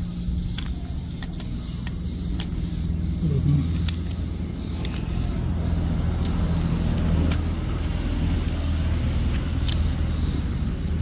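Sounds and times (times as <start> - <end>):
low engine rumble: 0.0 - 11.0
light plastic clicks: 3.7 - 4.2.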